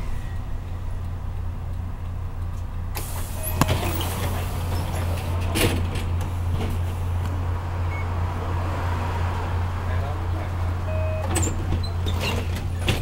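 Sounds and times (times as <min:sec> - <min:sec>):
bus diesel engine idling: 0:00.0 - 0:13.0
hiss: 0:03.0 - 0:04.7.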